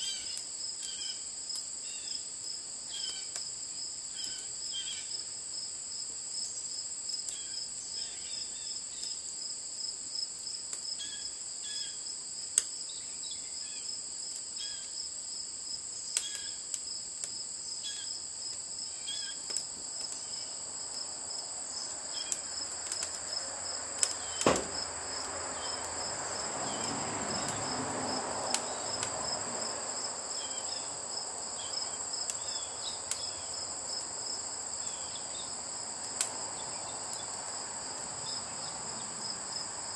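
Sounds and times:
wood fire crackling: 0.0s - 8.0s, 8.8s - 11.6s, 12.2s - 12.9s, 13.9s - 39.9s
crickets chirping: 0.0s - 39.9s
sharp pops from fire: 12.5s - 12.8s, 16.1s - 17.4s, 19.3s - 20.4s, 22.2s - 23.3s, 23.9s - 26.1s, 28.5s - 29.2s.

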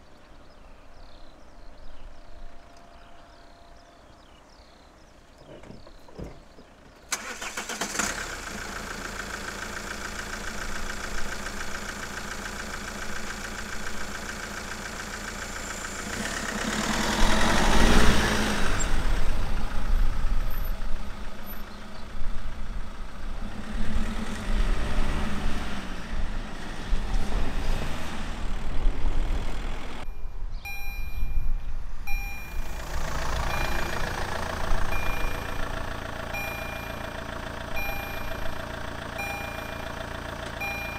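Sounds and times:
vehicles running: 2.5s - 40.9s
crossing warning signal strokes: 30.1s - 34.3s, 34.9s - 37.2s, 37.8s - 38.6s, 39.2s - 40.0s, 40.6s - 40.9s.

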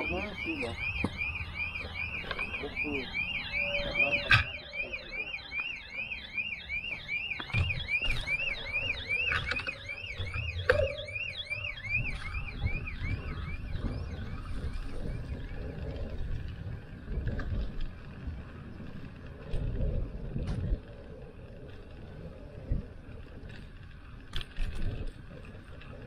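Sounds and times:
car alarm wailing: 0.0s - 16.2s.

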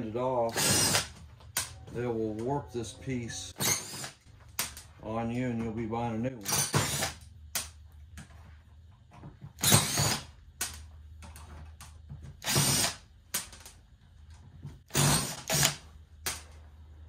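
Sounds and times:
cordless drill spinning: 0.5s - 1.2s, 9.6s - 10.3s, 12.4s - 13.0s, 14.9s - 15.8s.

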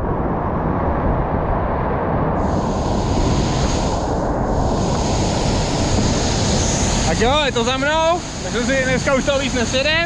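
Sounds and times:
bright water hiss: 2.4s - 10.0s
waterfall rushing: 2.4s - 10.0s.

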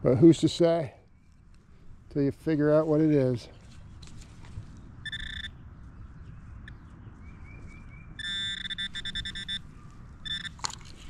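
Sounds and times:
metal detector beeps: 5.0s - 5.6s, 8.1s - 10.8s.

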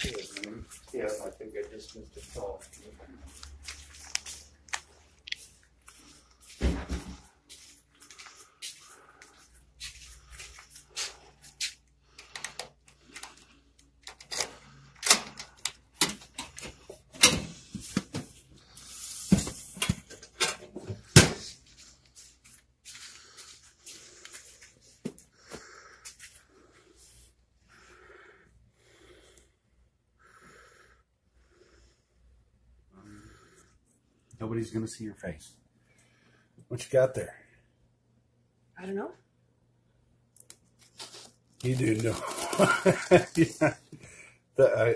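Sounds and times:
mailer rustling: 40.8s - 43.7s.

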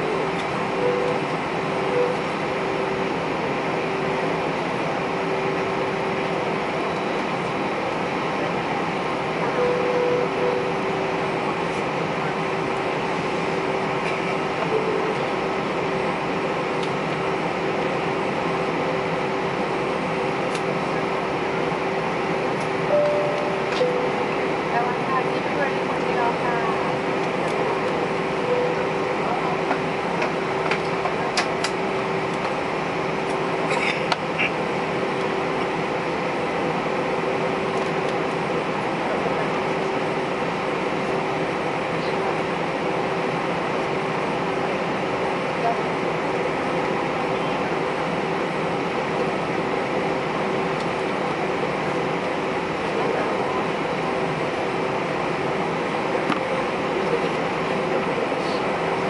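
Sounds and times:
aircraft cabin engine noise: 0.0s - 59.0s
thin steady whine: 0.0s - 59.0s
brief high tone: 0.8s - 1.2s, 1.9s - 2.3s, 9.5s - 10.8s, 22.9s - 24.5s, 28.4s - 29.0s.

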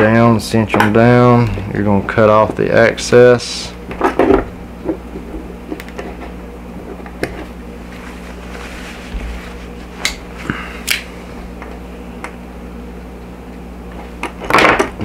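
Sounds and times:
steady low hum: 0.0s - 15.0s
cord rustling: 7.8s - 10.5s.

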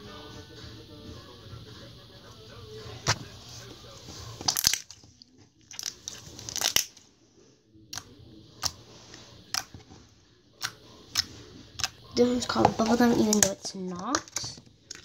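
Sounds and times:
slime squishing: 4.0s - 7.0s, 7.9s - 10.0s, 10.6s - 15.0s
slime popping and clicking: 4.4s - 5.0s, 10.6s - 12.0s.

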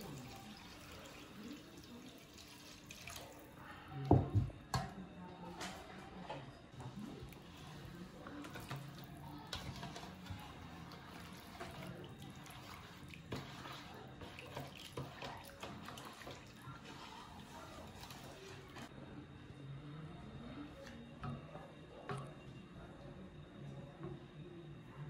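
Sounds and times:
liquid sloshing: 6.8s - 18.9s.

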